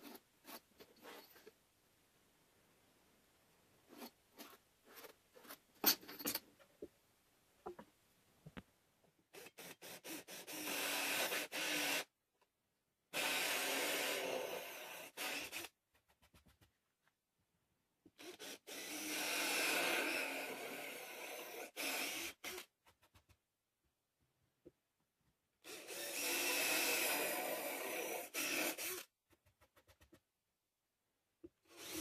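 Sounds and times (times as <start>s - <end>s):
drill hole saw cutting plywood: 9.4s - 12.1s, 13.1s - 15.7s, 18.2s - 22.7s, 25.6s - 29.1s, 31.7s - 32.0s.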